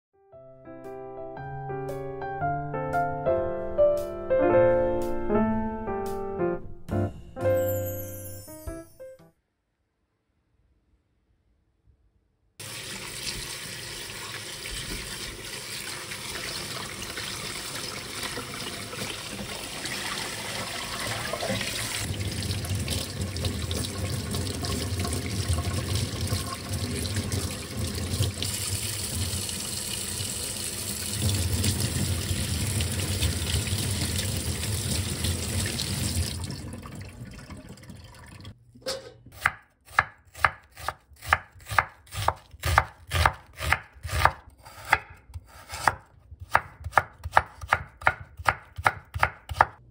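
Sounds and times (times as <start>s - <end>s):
tap water running into metal sink: 12.6s - 38.6s
knife slicing onion on wooden board: 38.9s - 49.8s.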